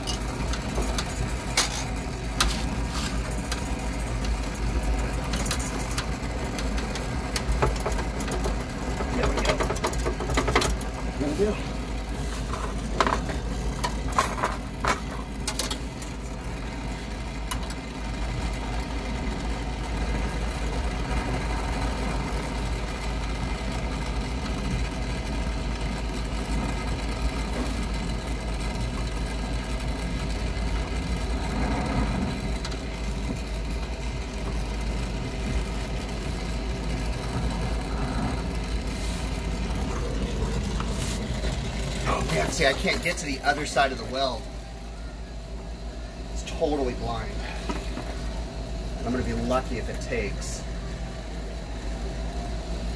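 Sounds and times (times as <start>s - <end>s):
torch flame rushing: 30.8s - 34.1s, 34.8s - 42.7s.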